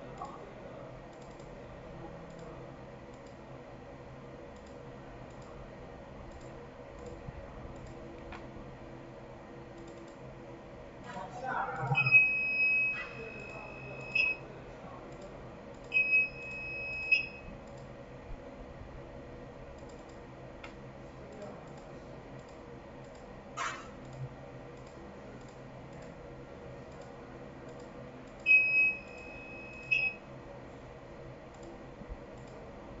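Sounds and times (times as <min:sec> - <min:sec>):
faint mouse clicks: 0:02.3 - 0:02.5, 0:03.1 - 0:03.4, 0:04.6 - 0:05.6, 0:07.8 - 0:08.5, 0:09.7 - 0:10.2, 0:19.7 - 0:23.3, 0:24.0 - 0:26.2, 0:26.9 - 0:28.4, 0:31.5 - 0:31.8, 0:32.4 - 0:32.6
buzzer high beep: 0:11.9 - 0:14.4, 0:15.9 - 0:17.5, 0:28.5 - 0:30.2.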